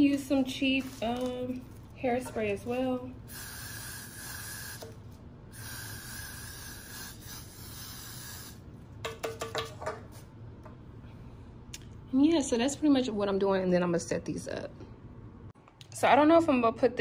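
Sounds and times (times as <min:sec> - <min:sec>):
aerosol can spraying: 0:03.3 - 0:08.6.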